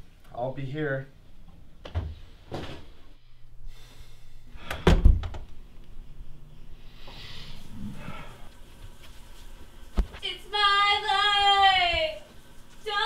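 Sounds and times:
door shutting with heavy thump: 4.7 - 5.4.

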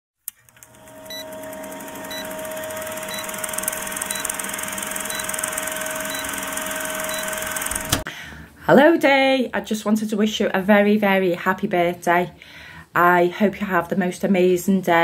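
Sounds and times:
film projector clattering: 0.3 - 8.0.

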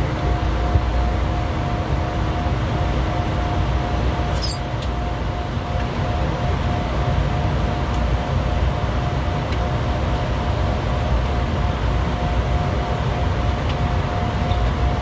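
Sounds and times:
jet cockpit rumble: 0.0 - 15.0
brief high squeak: 4.3 - 4.6.

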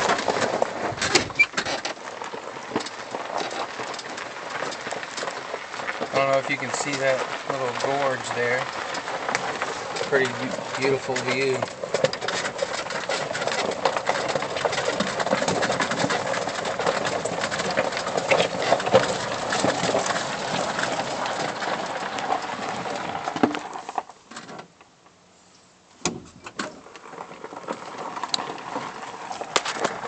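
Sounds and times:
tyres crunching over leaves: 0.0 - 24.3, 26.7 - 30.0
golf cart rattling: 0.0 - 25.2, 25.9 - 30.0.

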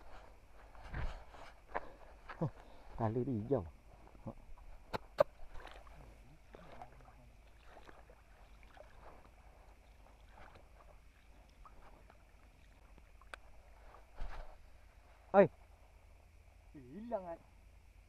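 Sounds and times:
wading through shallow water: 0.0 - 16.6
small ticks: 7.4 - 14.4.

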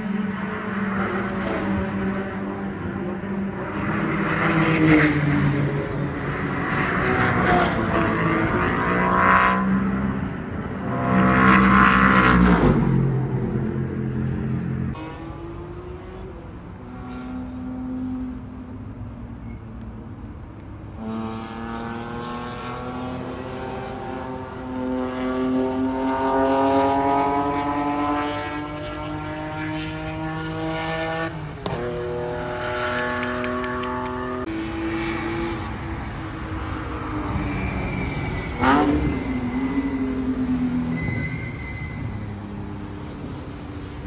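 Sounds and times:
race car engine accelerating: 14.3 - 37.8.

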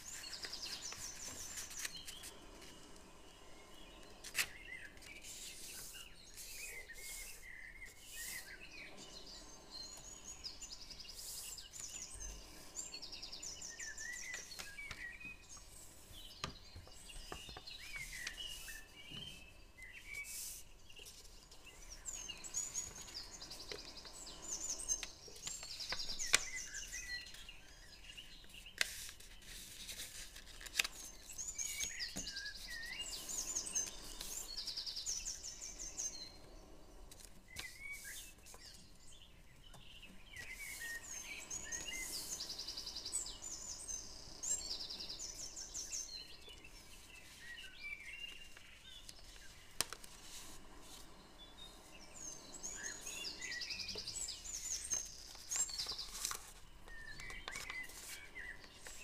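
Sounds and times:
paper being folded: 0.0 - 3.4, 4.1 - 8.5, 28.5 - 32.8, 33.8 - 34.4, 37.1 - 38.8, 48.3 - 51.1, 54.7 - 59.0
small birds chirping: 0.0 - 59.0.

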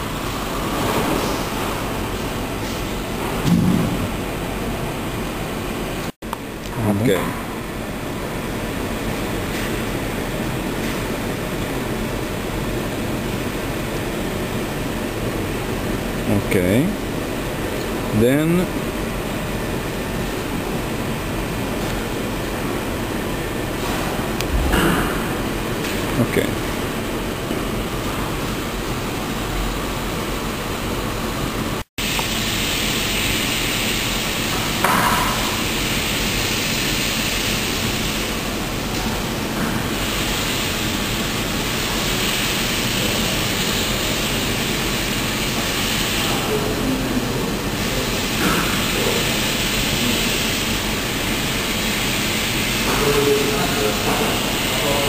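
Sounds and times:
steady background noise: 0.0 - 55.0
short brighter sound: 24.4 - 25.6.

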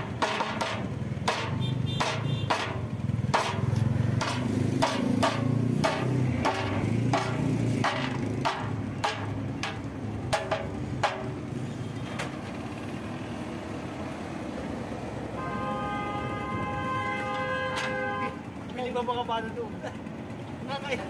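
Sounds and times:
wooden block knocking on metal frame: 0.0 - 11.4
vehicle engine rumbling: 0.0 - 21.0.

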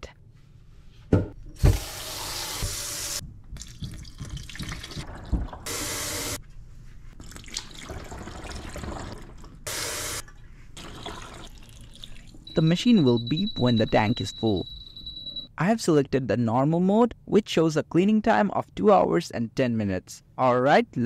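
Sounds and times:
faucet running into plastic pitcher: 7.2 - 10.1, 10.8 - 12.4.

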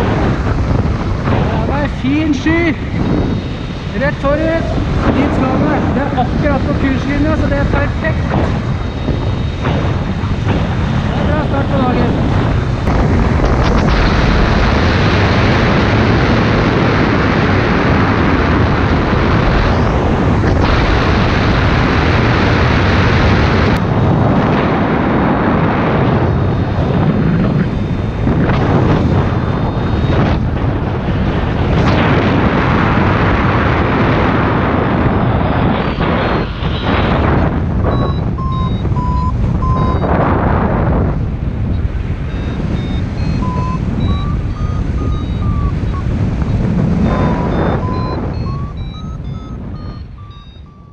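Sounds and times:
wind rushing over microphone: 0.0 - 50.9
variometer short beeps: 6.4 - 10.6, 26.1 - 30.5, 35.2 - 40.2, 41.7 - 50.9.

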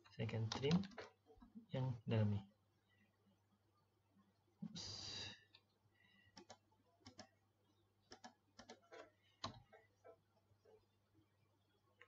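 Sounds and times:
computer mouse and keyboard clicks: 6.4 - 7.3, 8.1 - 9.8.

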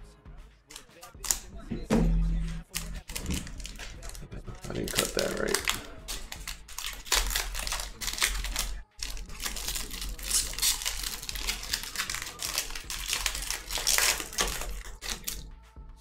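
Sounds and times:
foil wrapper crinkling and tearing: 2.7 - 15.4.

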